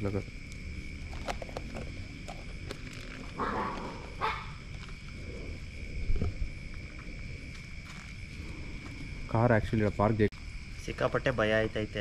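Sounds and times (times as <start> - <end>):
high insect drone: 0.0 - 12.0
dogs barking: 3.4 - 4.6.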